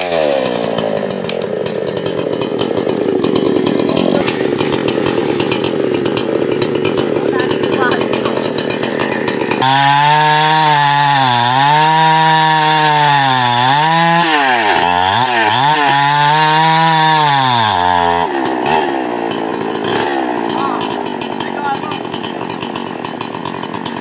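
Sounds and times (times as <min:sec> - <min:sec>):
chainsaw at high revs: 0:00.0 - 0:24.0.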